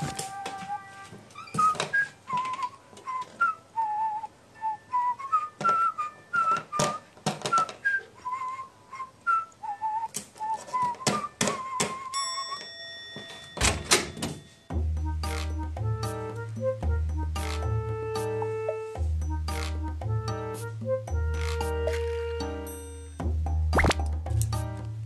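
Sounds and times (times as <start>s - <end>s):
whistled tune: 0.0s - 12.6s.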